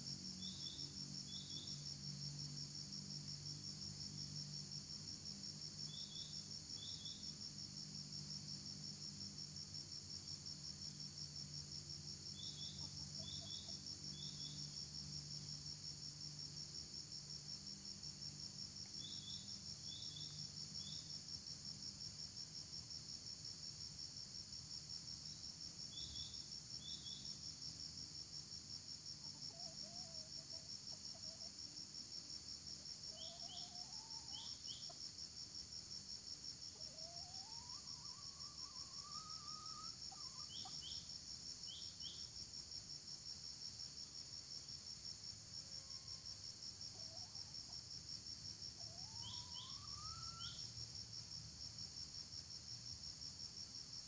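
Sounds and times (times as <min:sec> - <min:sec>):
insect drone: 0:00.0 - 0:54.0.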